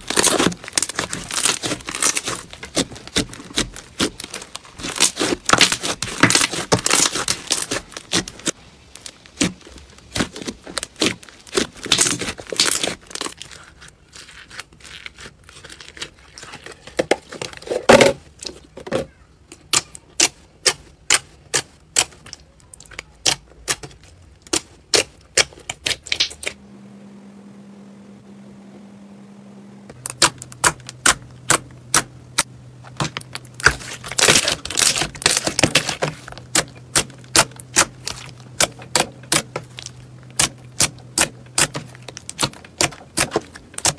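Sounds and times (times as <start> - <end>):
faint low hum: 26.4 - 43.9
slime clicking and popping: 30.0 - 43.9.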